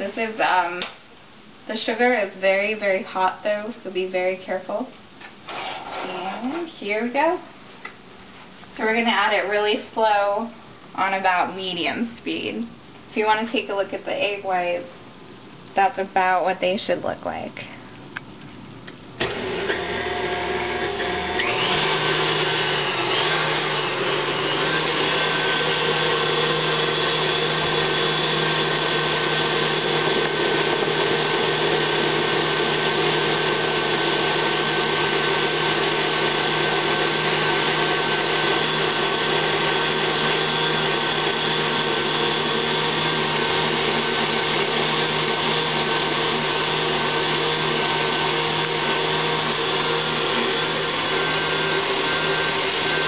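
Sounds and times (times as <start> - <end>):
stand mixer motor whirring: 19.2 - 53.0.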